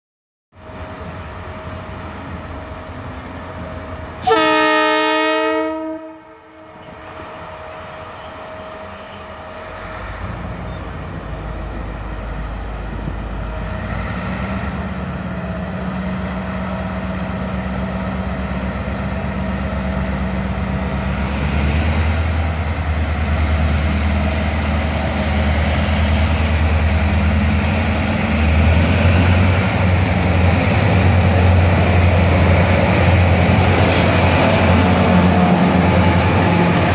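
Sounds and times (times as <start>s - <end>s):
locomotive horn blast: 4.2s - 6.9s.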